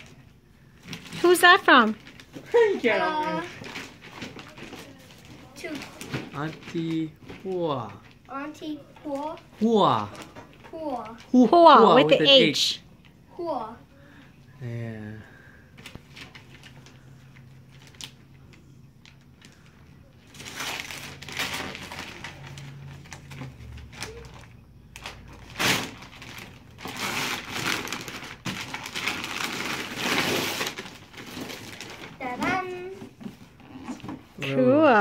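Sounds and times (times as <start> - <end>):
wrapping paper ripping and crumpling: 0.9 - 8.2, 15.8 - 32.7.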